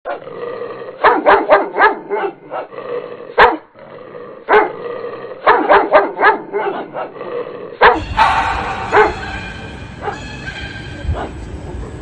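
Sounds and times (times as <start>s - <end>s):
dog barking: 1.0s - 2.7s, 3.4s - 3.7s, 4.5s - 4.8s, 5.4s - 7.2s, 7.8s - 11.6s.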